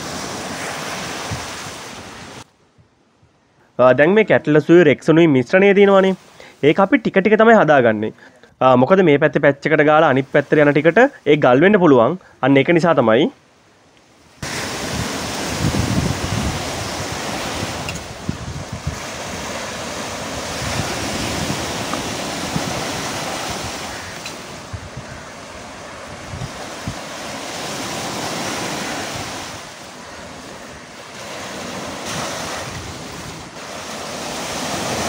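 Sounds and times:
sea surf washing up beach: 0.0 - 2.5, 5.6 - 7.2, 13.5 - 35.0
wind buffeting microphone: 0.0 - 3.4, 14.4 - 35.0.

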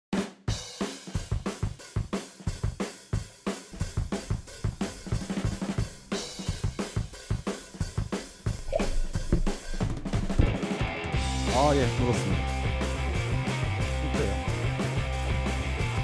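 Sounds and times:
drum kit beat: 0.1 - 16.0.

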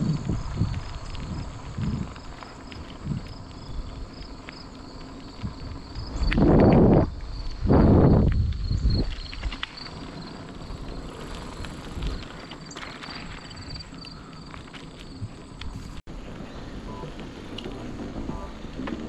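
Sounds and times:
wind rushing on microphone: 0.0 - 4.4, 5.3 - 12.6
insects pulsing chirp: 0.0 - 19.0.

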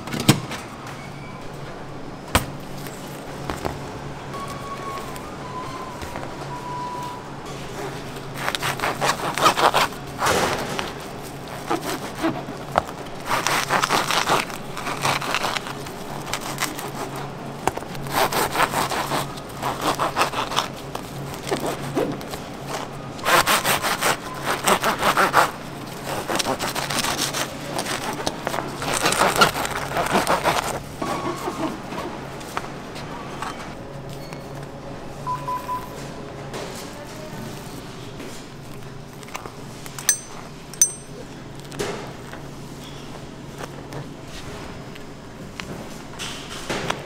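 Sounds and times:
bread knife sawing bagels: 8.4 - 10.1, 18.0 - 20.7, 23.2 - 27.5, 28.9 - 30.8.

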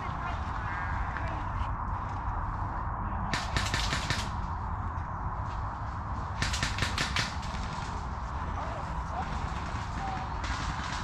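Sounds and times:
automatic airsoft gunfire: 3.3 - 4.4, 6.4 - 7.9, 9.3 - 11.0.

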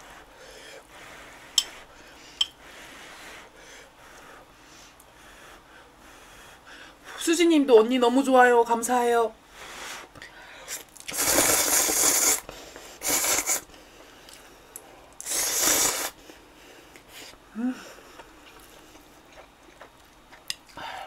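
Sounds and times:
person slurping noodles: 11.1 - 12.4, 13.0 - 13.7, 15.2 - 16.2
person chewing: 18.0 - 20.8.

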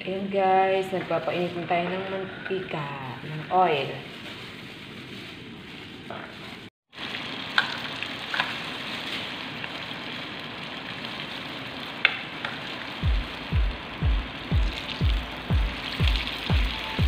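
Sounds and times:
food sizzling in oil: 6.9 - 17.0
music with low beat: 13.0 - 17.0.

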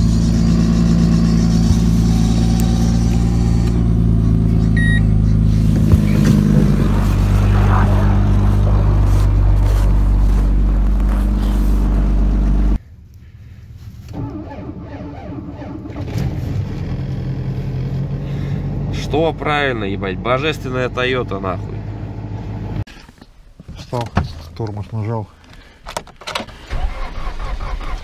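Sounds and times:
car engine humming: 0.0 - 22.9.

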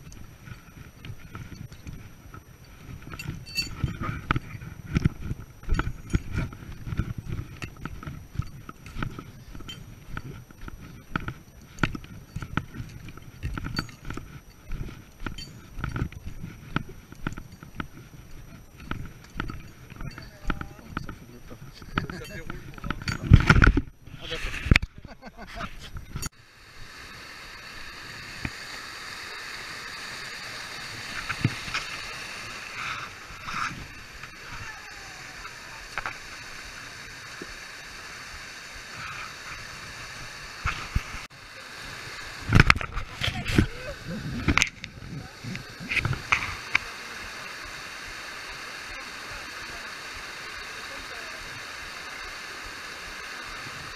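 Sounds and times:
footsteps on dirt trail: 0.0 - 24.5
stream rushing over rocks: 26.8 - 53.9.

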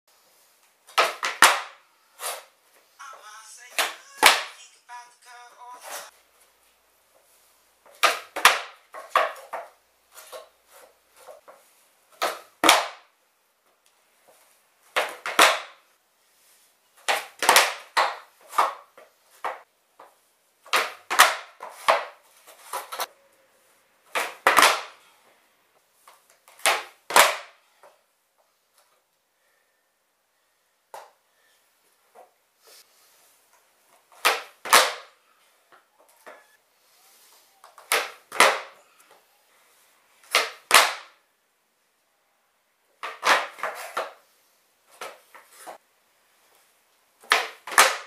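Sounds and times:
skateboard tail snapping on concrete: 0.9 - 1.8, 8.0 - 9.7, 12.2 - 13.0, 15.0 - 15.8, 17.1 - 18.8, 20.7 - 23.1, 24.1 - 25.0, 26.6 - 27.5, 34.2 - 35.1, 37.8 - 38.8, 40.3 - 41.2, 47.2 - 48.0
skateboard wheels clacking on landing: 0.9 - 1.8, 8.0 - 9.8, 14.9 - 15.8, 24.1 - 25.0.

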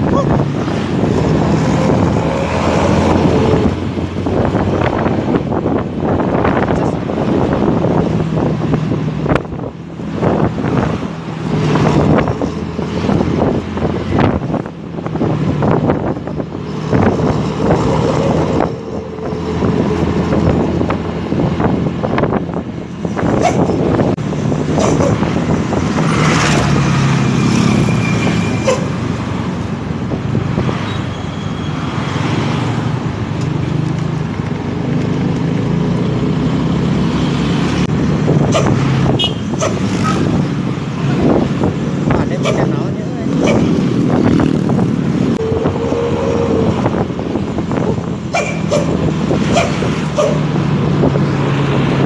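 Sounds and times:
engine and traffic noise: 0.0 - 52.0.

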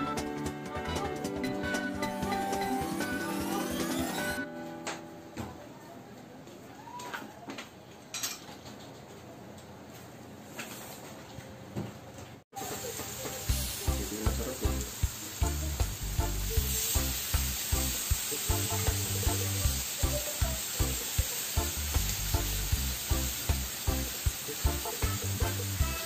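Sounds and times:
background music with beat: 0.0 - 5.1, 13.5 - 26.0
meat sizzling on grill: 12.6 - 26.0.

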